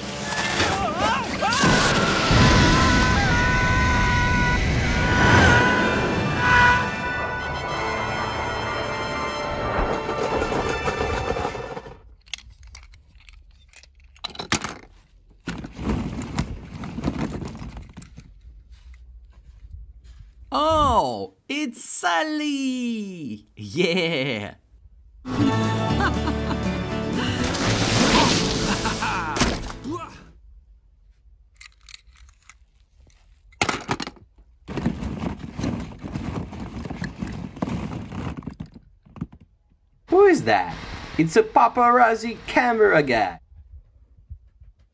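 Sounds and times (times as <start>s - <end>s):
music: 5.9s - 11.8s, 25.3s - 29.9s
plastic balls clattering: 12.2s - 18.3s, 33.6s - 39.5s.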